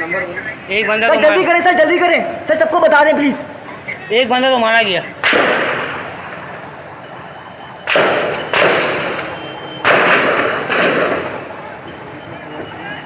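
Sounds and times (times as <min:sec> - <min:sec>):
gunshots echoing: 0:05.2 - 0:06.2, 0:07.9 - 0:11.4.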